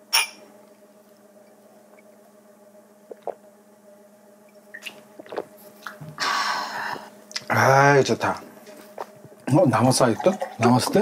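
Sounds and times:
low room hum: 0.0s - 11.0s
people gulping drinks: 3.1s - 3.4s, 4.8s - 6.2s.

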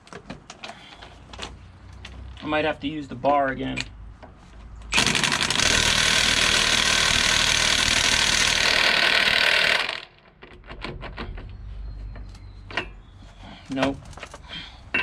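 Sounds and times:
impact wrench hammering: 4.9s - 10.1s.

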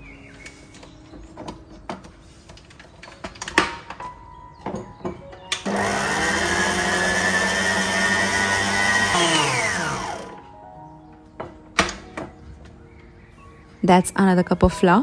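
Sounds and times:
mixer motor humming and whining: 5.6s - 10.5s.

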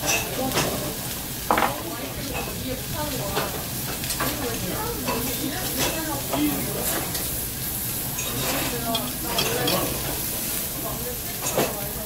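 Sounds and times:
meat sizzling on a grill: 0.0s - 12.0s.

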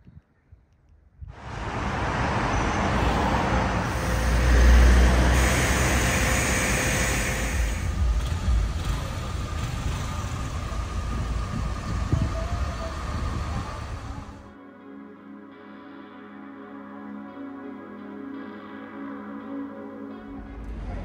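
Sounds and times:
vehicle passing close: 1.3s - 14.4s
road traffic going by: 1.3s - 14.5s.

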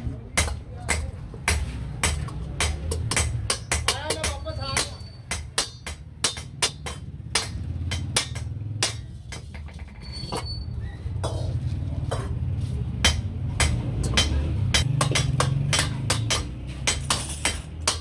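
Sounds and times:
hammer striking metal wok: 0.4s - 9.9s, 11.2s - 12.4s, 13.0s - 18.0s.

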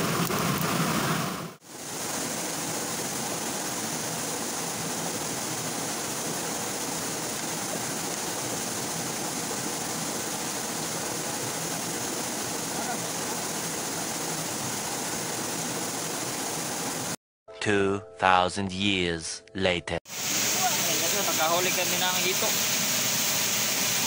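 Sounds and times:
stream water rushing: 0.0s - 17.2s, 20.1s - 24.0s.

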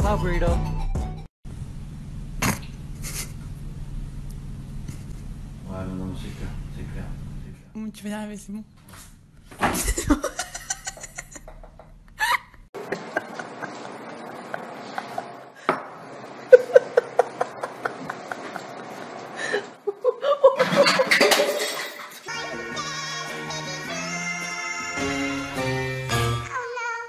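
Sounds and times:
person laughing: 3.0s - 3.4s, 9.7s - 15.4s, 16.5s - 21.4s.

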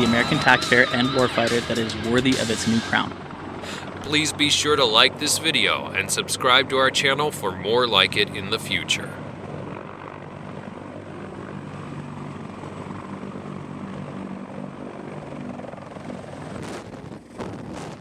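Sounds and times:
helicopter rotor and turbine drone: 0.0s - 18.0s
wind gusts on microphone: 15.7s - 18.0s.

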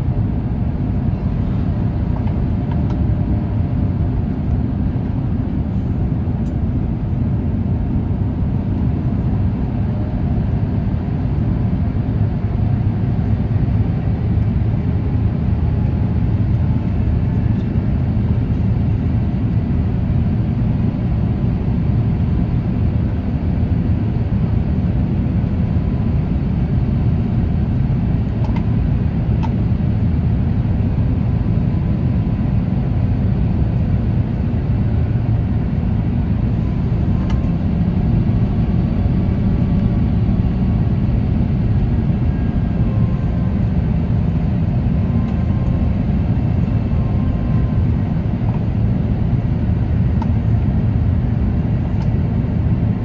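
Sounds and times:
airliner cabin roar: 0.0s - 53.0s
faint steady hum: 0.0s - 53.0s.

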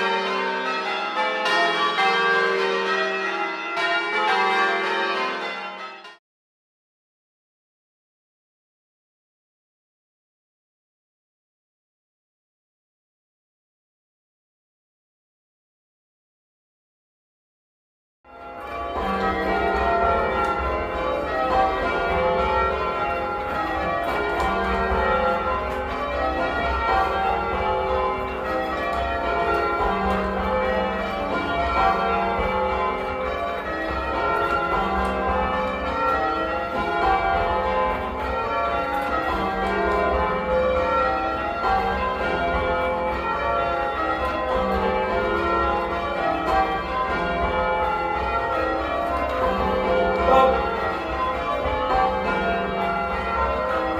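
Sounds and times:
church bells ringing: 0.0s - 6.2s, 18.3s - 53.9s.

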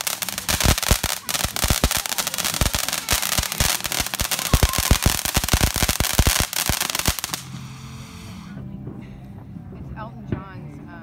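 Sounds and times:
firework pops and crackles: 0.0s - 7.7s
firework hissing: 0.0s - 8.6s.

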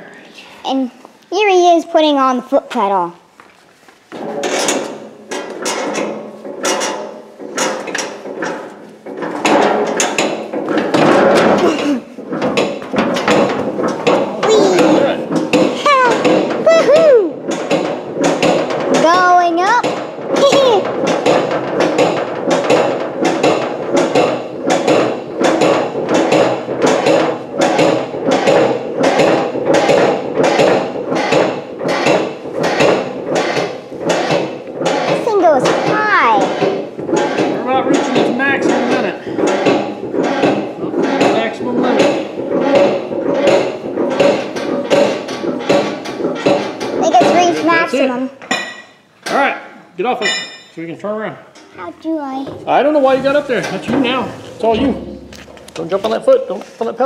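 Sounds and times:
metal clanking of foot pedal: 4.1s - 47.6s, 52.4s - 56.6s.

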